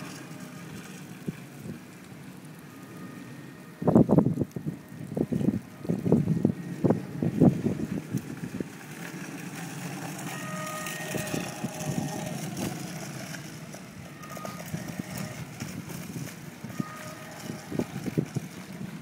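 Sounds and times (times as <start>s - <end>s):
faint whine: 0.0s - 18.8s
wheels rolling on asphalt: 0.0s - 19.0s
wind gusts on microphone: 3.7s - 9.4s, 10.8s - 19.0s.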